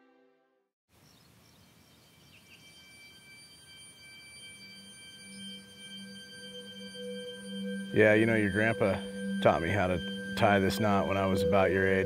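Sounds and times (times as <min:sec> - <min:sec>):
faint chirps: 0:00.9 - 0:12.0
high sustained ringing tones: 0:01.9 - 0:12.0
low drone tone: 0:02.6 - 0:12.0.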